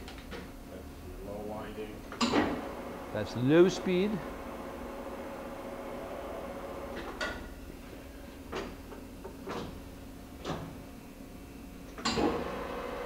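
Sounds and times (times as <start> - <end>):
steady low hum: 0.0 - 13.0
lathe levers clunking: 2.2 - 2.6, 11.9 - 12.6.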